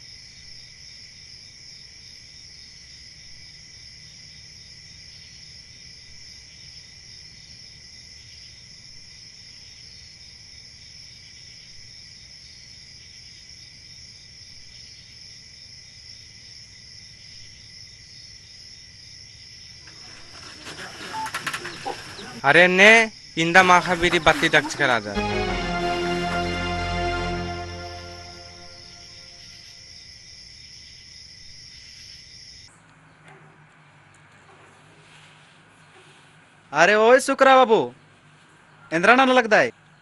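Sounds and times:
crickets chirring: 0.0 - 25.2, 28.0 - 32.7.

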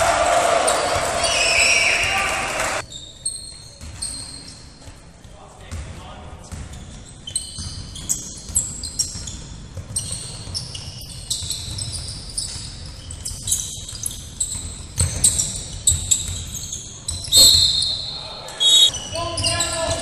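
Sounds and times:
sneakers squeaking on floor: 0.7 - 20.0
basketball dribbling: 5.7 - 17.7
high squeal: 15.2 - 19.9.

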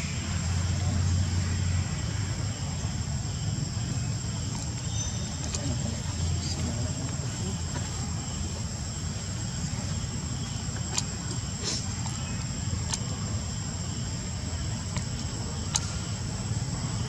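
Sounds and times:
insects buzzing: 0.0 - 17.0
faint clicks: 12.8 - 13.2, 14.9 - 16.0.

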